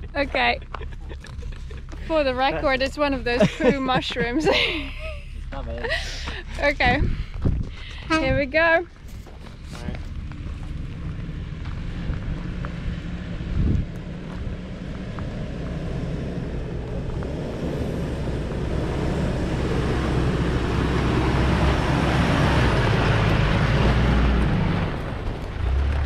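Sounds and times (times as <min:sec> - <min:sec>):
tyre and track noise: 0:00.0 - 0:03.3, 0:05.4 - 0:19.6
off-road engine pulling: 0:00.0 - 0:26.0.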